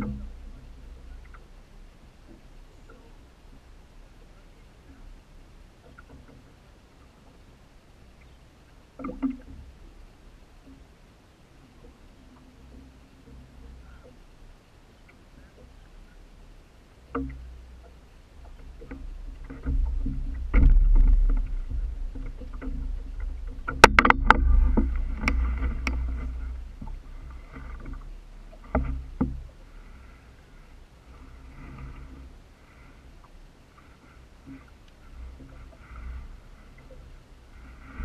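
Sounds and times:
water lapping against boat hull: 0.0 - 38.0
low rumble: 15.6 - 38.0.

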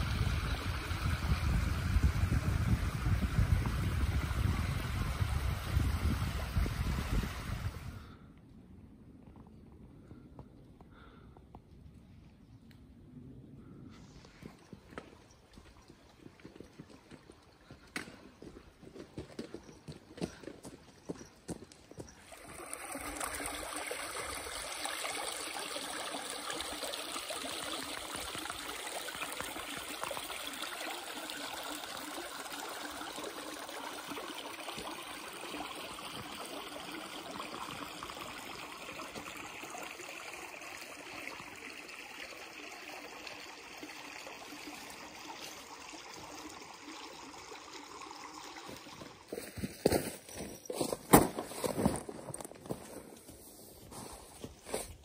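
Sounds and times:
stream flowing: 0.0 - 7.9, 22.1 - 49.5.

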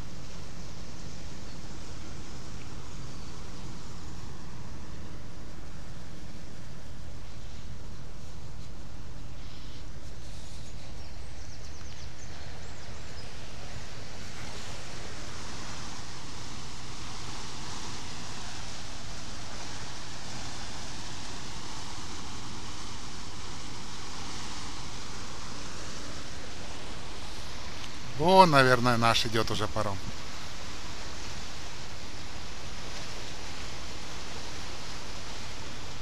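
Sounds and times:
propeller wash churning water: 13.2 - 36.0.

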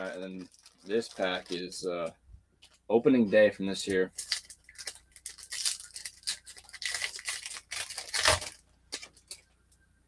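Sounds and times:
foil wrapper crinkling and tearing: 0.0 - 2.1, 3.7 - 9.4.

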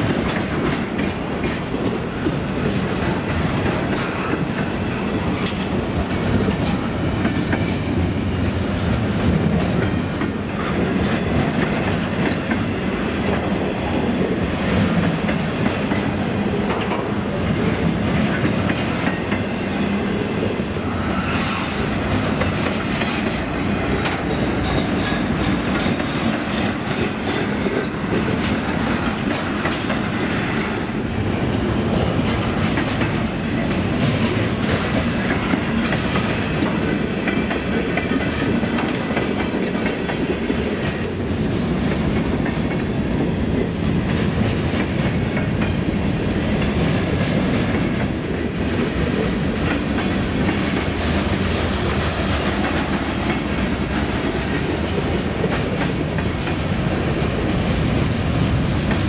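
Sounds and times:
train rumble: 0.0 - 59.0
train wheels clacking on rails: 0.0 - 59.0.

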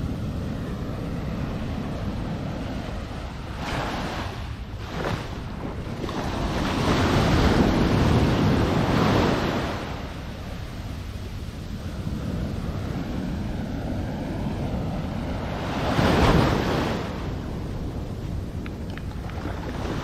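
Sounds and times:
waves washing on beach: 0.0 - 20.0
wind rumble on microphone: 0.0 - 20.0.

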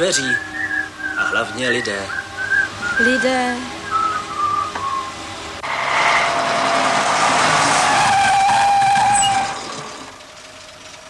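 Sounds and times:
faint brake squeal: 5.8 - 10.2.

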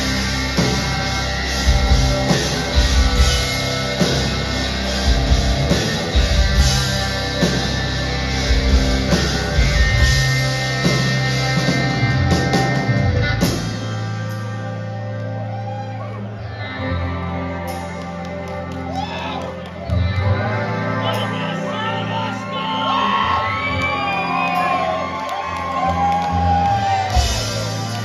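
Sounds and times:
drums hitting a steady beat: 0.0 - 14.6, 26.9 - 28.0
rock band playing live: 0.0 - 28.0.

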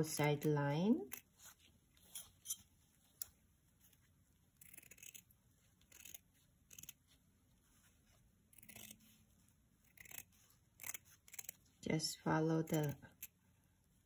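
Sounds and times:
scissors snipping fabric: 0.0 - 7.1, 8.5 - 9.1, 9.8 - 11.7, 12.6 - 13.4.

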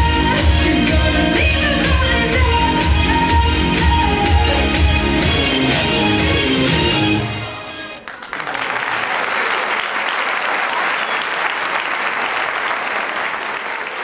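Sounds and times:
audience applauding: 8.0 - 14.0.

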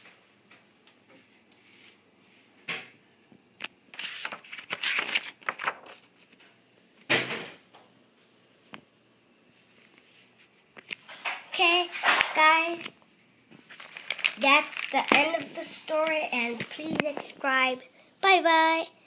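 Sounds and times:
paper rustling: 3.9 - 6.4, 13.6 - 17.6
book handling rustling and knocking: 13.6 - 17.3.

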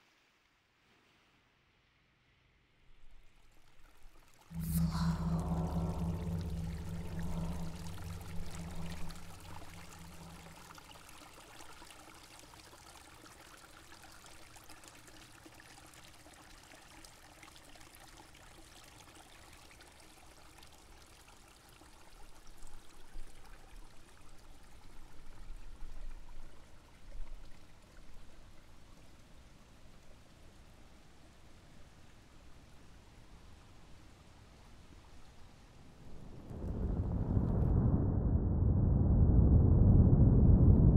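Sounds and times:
low drone: 4.5 - 10.9, 36.1 - 40.9
soft steady wash of noise: 4.5 - 12.1, 27.6 - 40.9.

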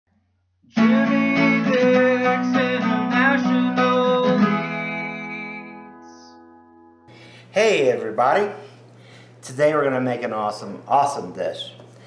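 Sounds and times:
guitar strumming chords: 0.7 - 7.4.

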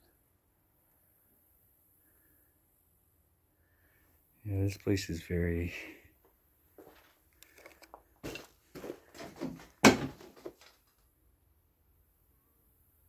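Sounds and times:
knocks and creaks of footsteps: 6.2 - 10.9.

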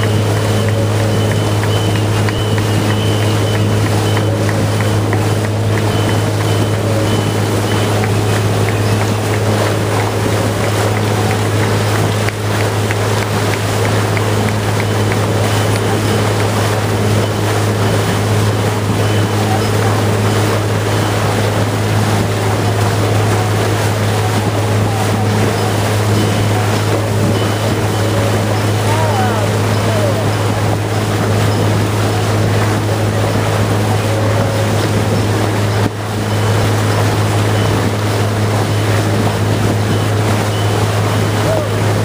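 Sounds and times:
boat engine droning: 0.0 - 42.0
water churning in wake: 0.0 - 42.0.

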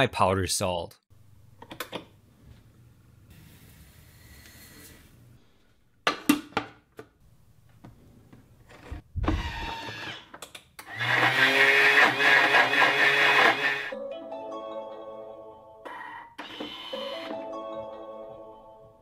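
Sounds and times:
blender motor grinding salt: 10.8 - 13.9.

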